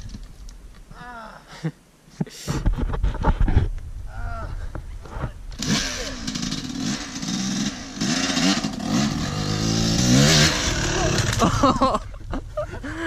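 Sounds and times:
dirt bike engine revving: 0:05.6 - 0:12.0.

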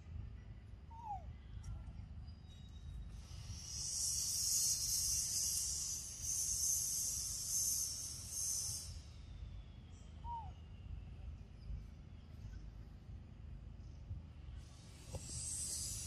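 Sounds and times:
high insect drone: 0:03.2 - 0:09.4.

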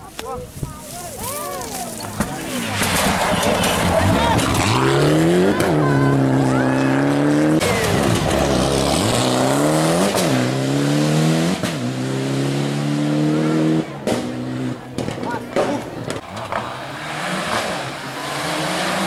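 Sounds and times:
rally car engine revving: 0:02.1 - 0:19.0.

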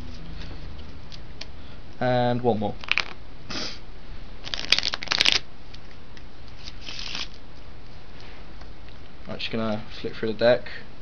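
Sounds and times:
playing cards being shuffled: 0:02.8 - 0:03.2, 0:04.4 - 0:07.4.

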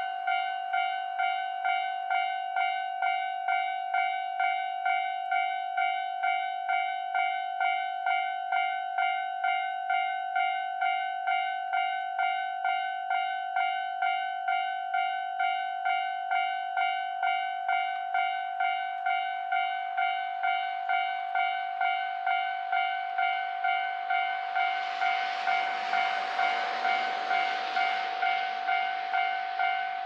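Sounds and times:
crossing warning bell dinging: 0:00.0 - 0:30.0
approaching train rushing: 0:15.8 - 0:30.0.

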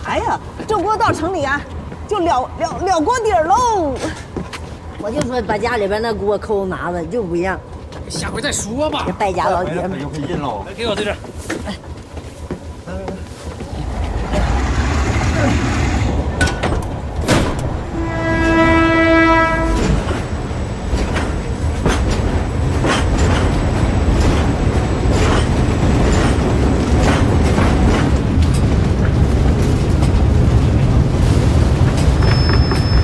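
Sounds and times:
train rumbling: 0:00.0 - 0:33.0
wheels clanking on track: 0:00.0 - 0:33.0
train horn: 0:17.8 - 0:20.2.

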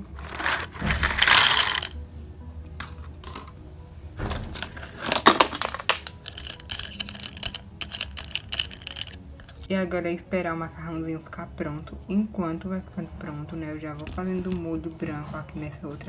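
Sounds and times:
handling rustle: 0:00.0 - 0:01.9, 0:04.8 - 0:09.7
dry pasta rattling into pot: 0:00.2 - 0:01.9, 0:05.0 - 0:09.6.

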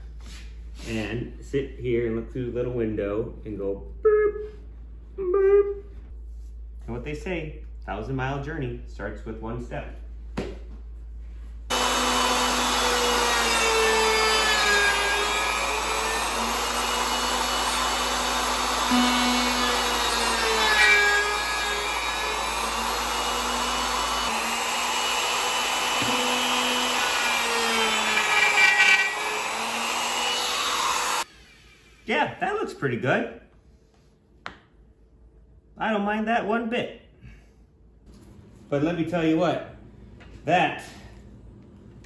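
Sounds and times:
wood router cutting: 0:11.7 - 0:31.8.

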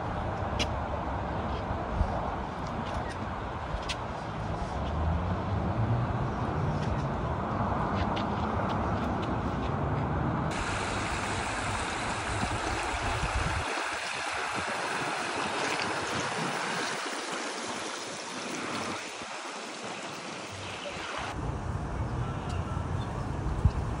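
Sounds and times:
car driving on road: 0:04.2 - 0:11.7
river flowing: 0:10.5 - 0:21.4.

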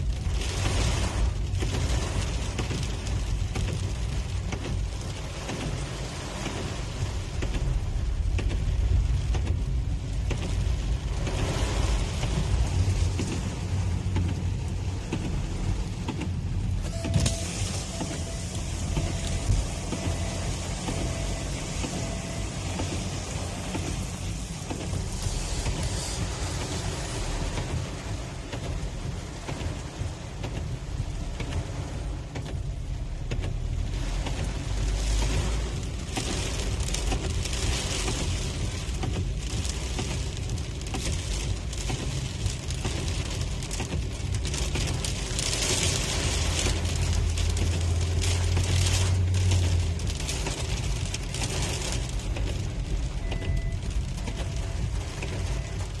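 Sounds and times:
engine and tyre rumble: 0:00.0 - 0:56.0
hiss of wet road and rain: 0:00.0 - 0:56.0
windscreen wipers swishing: 0:00.0 - 0:56.0
deep hum: 0:12.1 - 0:27.6.

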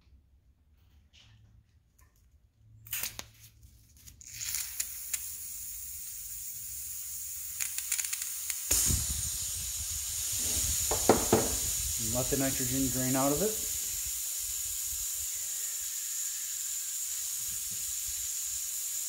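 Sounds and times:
pressurised gas hissing: 0:04.5 - 0:19.0.

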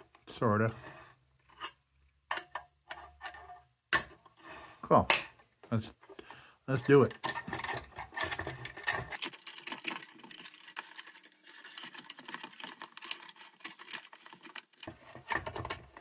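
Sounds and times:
lantern parts clicking and tapping: 0:02.3 - 0:04.2, 0:06.2 - 0:16.0.

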